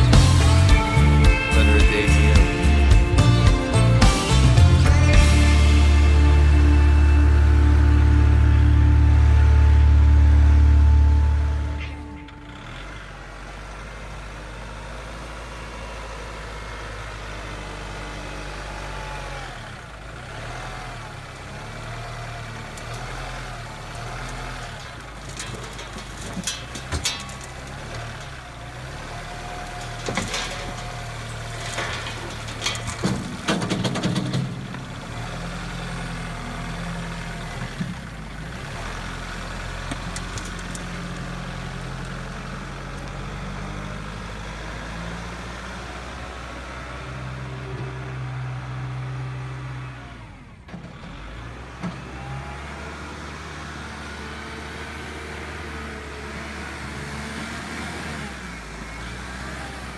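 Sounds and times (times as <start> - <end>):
machine engine running: 0.0 - 13.5
sharp knocks and clatter: 24.3 - 28.4, 29.6 - 35.4.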